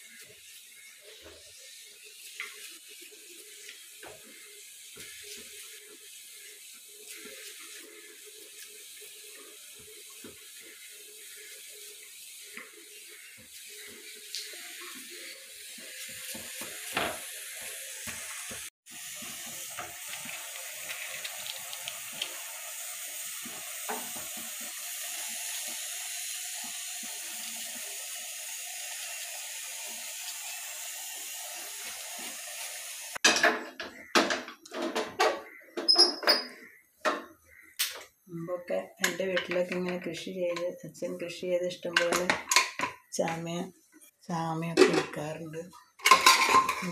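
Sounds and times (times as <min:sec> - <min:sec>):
metal pan clanking: 0:44.8 - 0:45.2, 0:46.0 - 0:46.9.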